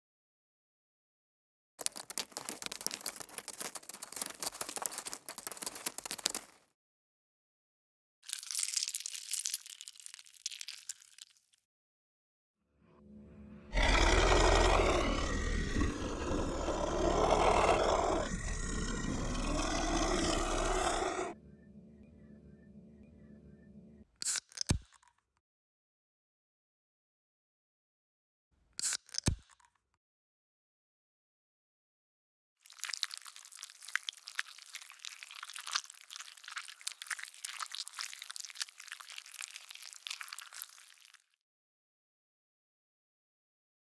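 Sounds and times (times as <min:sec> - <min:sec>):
dense irregular crackling: 0:01.8 - 0:06.6.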